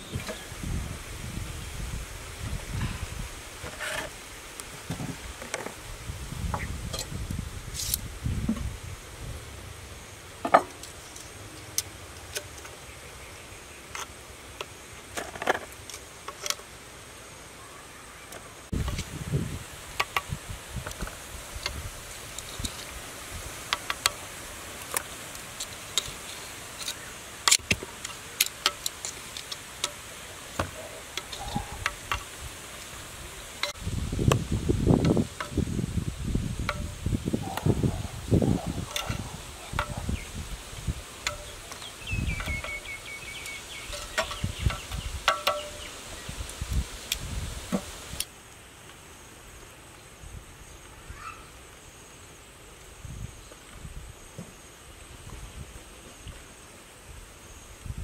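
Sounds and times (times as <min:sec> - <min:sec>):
insects buzzing faintly: 0:00.0 - 0:58.0
metal tongs clacking against pot: 0:26.8 - 0:30.0, 0:38.9 - 0:40.0, 0:41.2 - 0:42.8, 0:43.4 - 0:45.9.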